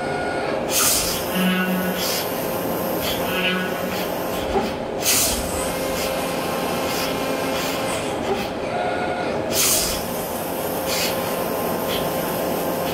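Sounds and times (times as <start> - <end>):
metal machining noise: 0.1 - 10.1.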